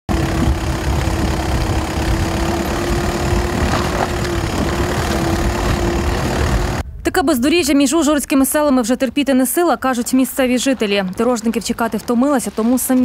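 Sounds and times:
car engine running: 0.1 - 6.9.

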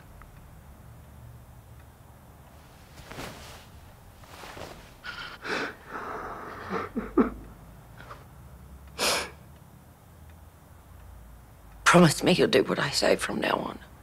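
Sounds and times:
young man sobbing: 5.1 - 8.2.

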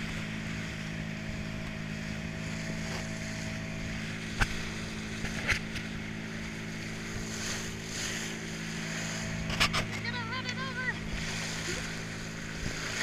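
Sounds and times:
motorboat engine running: 0.0 - 13.0
water rushing along hull: 0.0 - 13.0.

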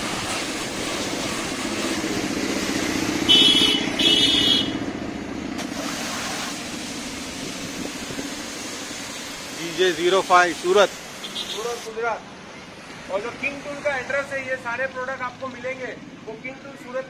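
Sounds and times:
water jet hissing: 0.0 - 4.6, 5.6 - 12.2
pressure washer running: 0.0 - 12.0.

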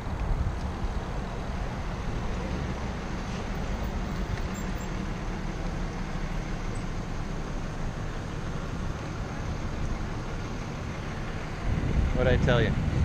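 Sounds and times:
cars passing: 0.0 - 13.0
road noise from bicycle: 0.0 - 13.0
wind rushing: 11.6 - 13.0.

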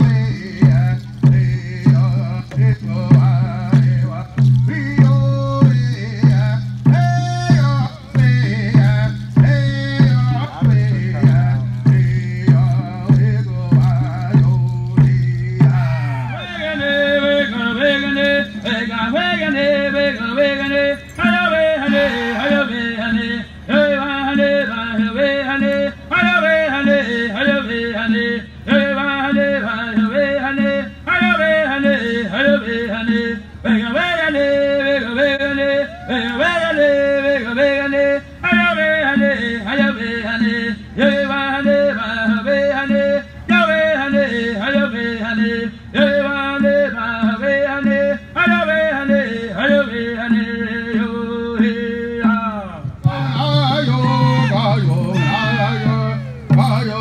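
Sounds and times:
fast drumbeat: 0.0 - 16.4, 52.9 - 57.0
men singing: 0.0 - 57.0.

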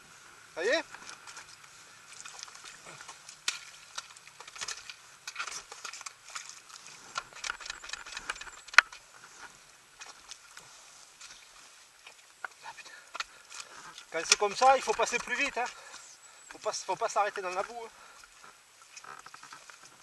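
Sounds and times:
dirt bike knocks and scuffs in mud: 14.0 - 15.7.

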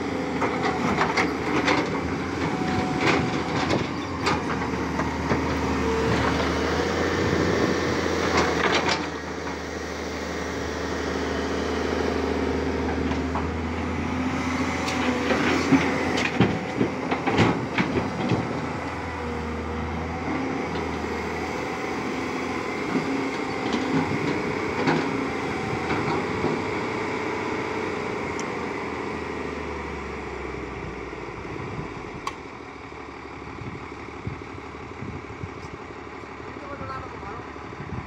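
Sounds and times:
excavator diesel engine running: 0.0 - 38.0
loud knocks and clanks: 15.0 - 18.6.

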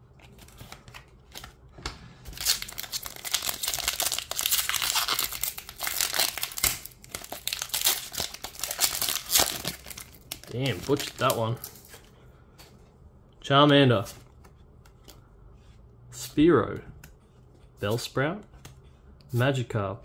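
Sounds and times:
foil wrapper crinkling and tearing: 2.3 - 12.0.

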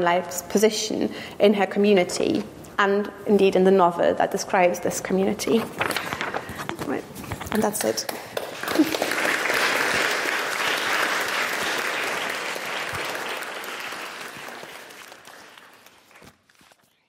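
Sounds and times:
audience applauding: 8.4 - 16.4.

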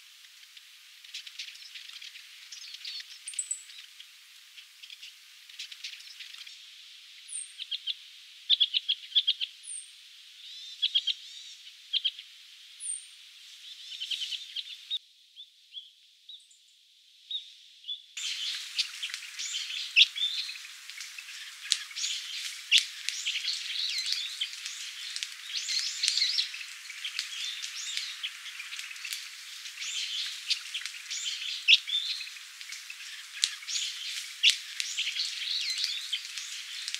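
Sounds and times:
finches calling in rapid bursts: 18.2 - 36.9
flock of birds calling: 18.2 - 36.9.

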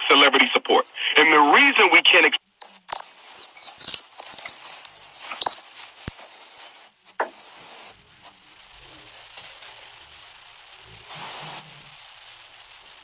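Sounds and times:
garbled crackling voice: 0.0 - 7.8
steady hiss: 0.0 - 13.0.

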